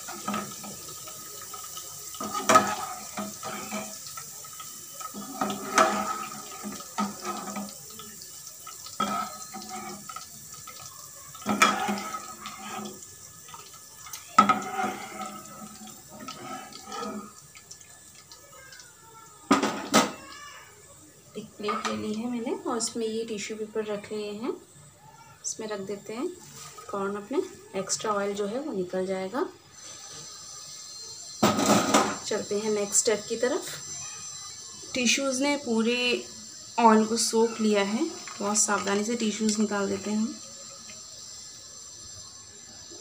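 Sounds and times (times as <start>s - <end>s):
oil trickling and dripping: 0.0s - 19.6s.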